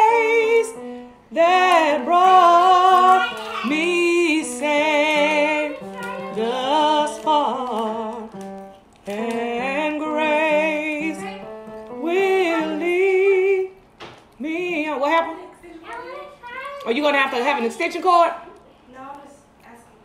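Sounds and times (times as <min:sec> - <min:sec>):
woman singing with vibrato: 0:00.0 - 0:08.4, 0:09.0 - 0:13.8, 0:14.4 - 0:15.5.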